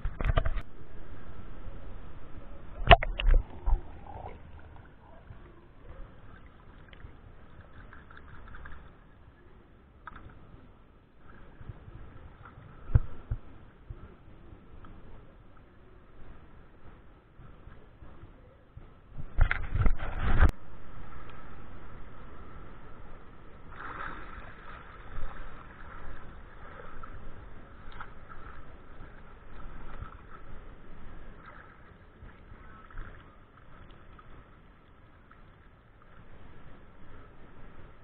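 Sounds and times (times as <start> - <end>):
water sloshing around legs: 2.8 - 9.2
river water sloshing and splashing: 2.8 - 9.4, 23.5 - 37.4.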